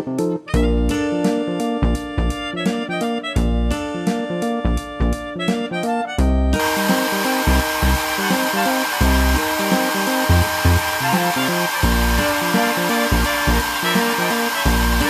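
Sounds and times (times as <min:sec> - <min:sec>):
background music: 0:00.0 - 0:15.0
toy hair dryer running: 0:06.6 - 0:15.0.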